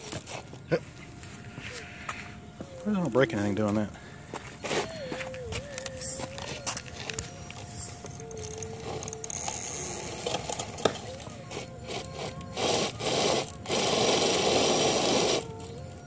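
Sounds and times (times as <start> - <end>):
electric motor and gears whirring: 0.0 - 16.0.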